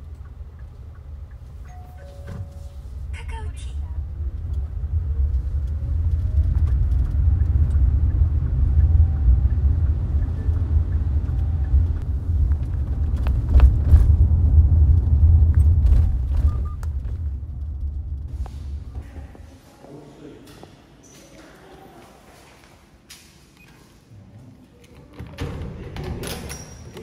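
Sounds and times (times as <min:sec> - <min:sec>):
moving vehicle rumble: 0:00.0 - 0:19.6.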